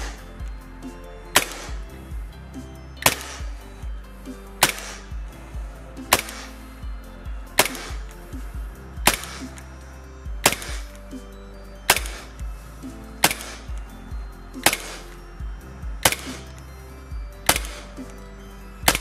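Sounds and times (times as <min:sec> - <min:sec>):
airsoft pistol shots: 0:01.4 - 0:01.9, 0:03.0 - 0:03.6, 0:04.6 - 0:05.2, 0:06.1 - 0:06.6, 0:07.6 - 0:08.2, 0:09.0 - 0:09.6, 0:10.4 - 0:11.0, 0:11.9 - 0:12.4, 0:13.2 - 0:13.8, 0:14.6 - 0:15.2, 0:16.0 - 0:16.5, 0:17.4 - 0:18.0.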